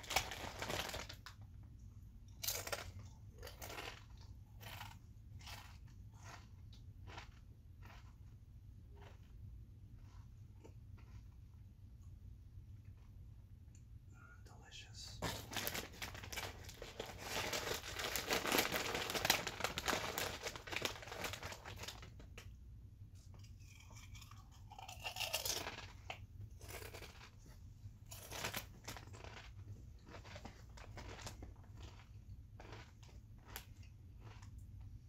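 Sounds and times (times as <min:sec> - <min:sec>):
chip bag crinkling: 0:00.0 - 0:01.5, 0:02.3 - 0:08.2, 0:15.2 - 0:22.5, 0:23.6 - 0:34.5
chips being crunched: 0:02.4 - 0:06.4, 0:23.6 - 0:27.4.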